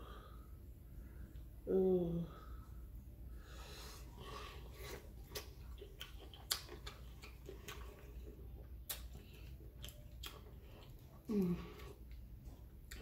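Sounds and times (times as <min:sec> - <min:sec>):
mouth clicks and smacks chewing: 0:04.9 - 0:13.0.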